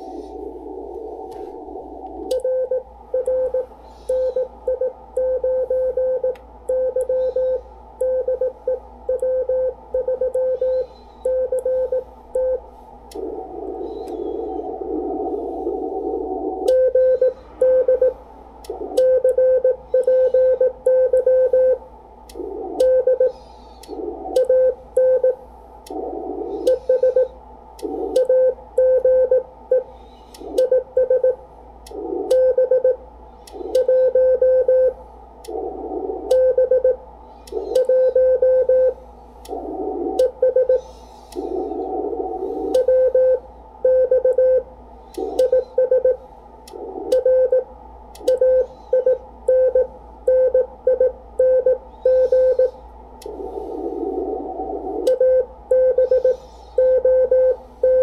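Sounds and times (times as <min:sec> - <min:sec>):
radio hiss: 0:00.0 - 0:04.6, 0:10.8 - 0:19.0, 0:21.4 - 0:28.3, 0:29.8 - 0:32.4, 0:34.9 - 0:36.6, 0:38.8 - 0:43.5, 0:52.2 - 0:56.9
morse code sidetone beeps: 0:55.1 - 0:58.0.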